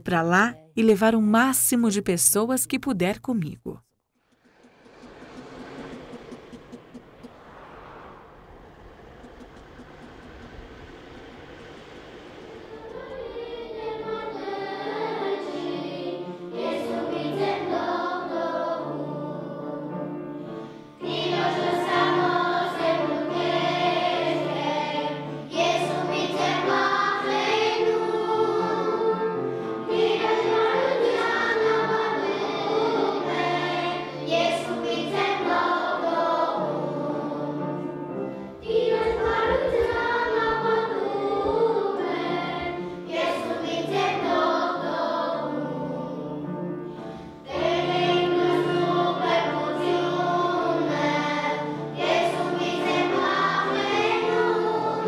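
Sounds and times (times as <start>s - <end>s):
choir singing: 9.5s - 20.2s, 21.0s - 46.7s, 47.4s - 55.0s
low musical accompaniment: 12.7s - 55.0s.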